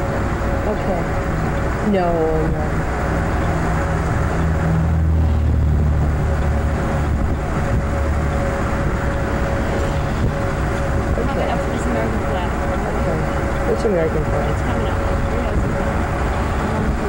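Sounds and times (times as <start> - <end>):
car engine and road rumble: 0.0 - 17.0.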